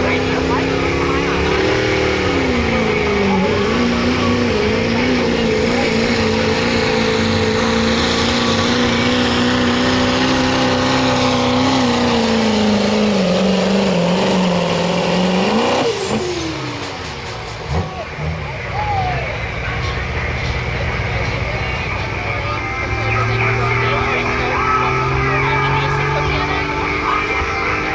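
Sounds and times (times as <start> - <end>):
diesel truck engine revving high: 0.0 - 27.9.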